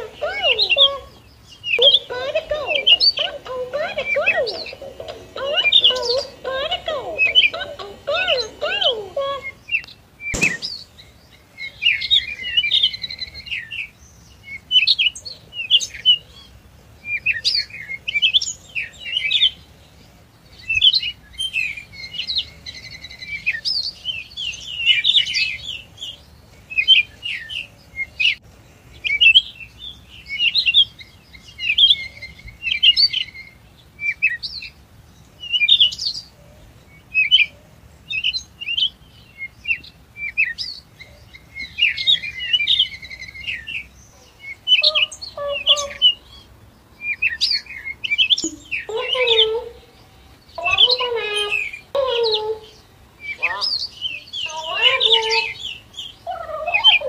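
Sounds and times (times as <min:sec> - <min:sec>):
recorded bird chirps from speaker: 0:00.0 - 0:11.0, 0:47.1 - 0:49.9, 0:50.5 - 0:57.0.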